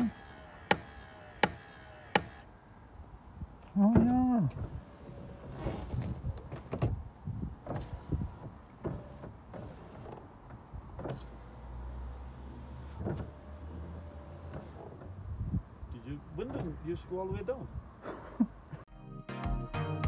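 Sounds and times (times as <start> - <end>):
small electric motor whirring: 0.0 - 2.5.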